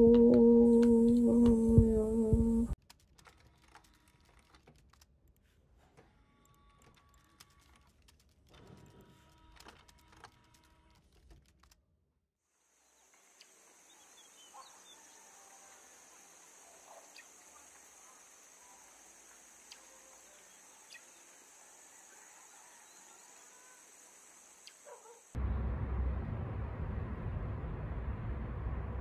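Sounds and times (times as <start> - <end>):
faint high-pitched hiss: 12.5 - 25.3
faint chirps: 12.8 - 25.2.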